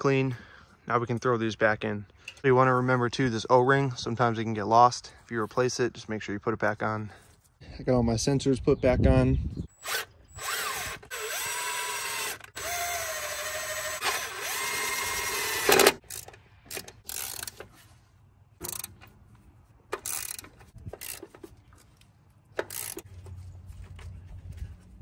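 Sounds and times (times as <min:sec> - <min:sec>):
impact driver running: 0:09.9 - 0:16.3.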